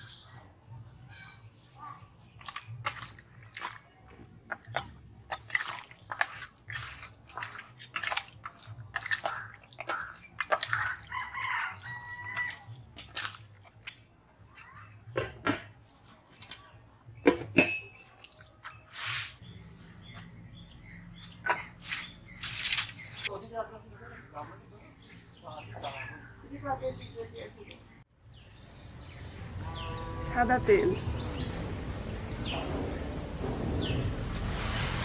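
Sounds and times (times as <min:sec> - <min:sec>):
spatula squelching in steel bowl: 0:04.5 - 0:14.0.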